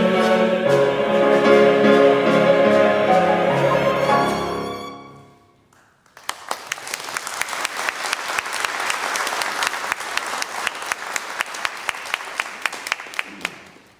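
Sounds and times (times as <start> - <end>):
choir and ensemble chord: 0.0 - 5.6
audience applause: 6.1 - 13.9.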